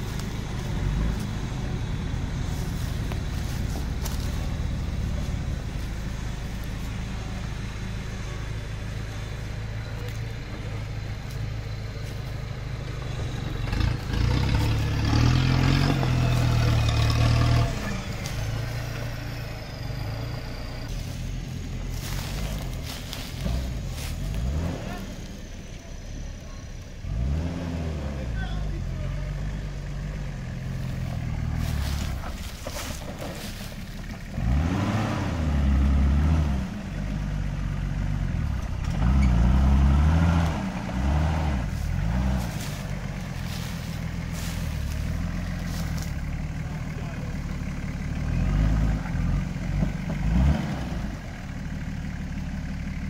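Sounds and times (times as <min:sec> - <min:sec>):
off-road vehicle engine revving: 0:00.0 - 0:53.0.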